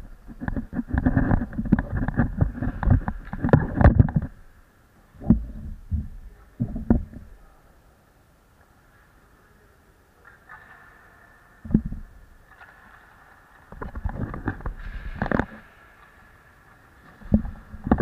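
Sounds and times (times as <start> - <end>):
camera handling rubbing and knocking: 0.3 - 4.4.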